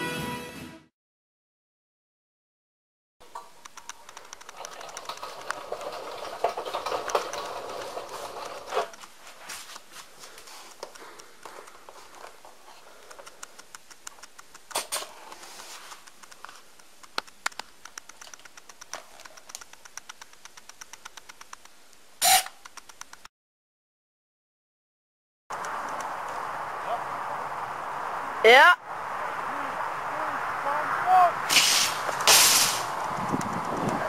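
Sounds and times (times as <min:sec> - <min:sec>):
timer clicks and faint ticking: 0:13.0 - 0:14.8.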